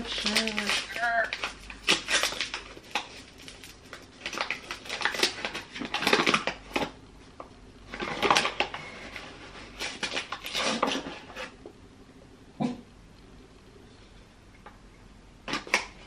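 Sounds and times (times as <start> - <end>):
rustling and scraping: 7.9 - 11.7.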